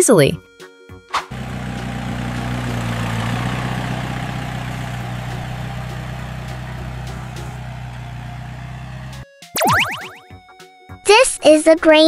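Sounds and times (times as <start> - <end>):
tractor engine running: 1.3 - 9.2.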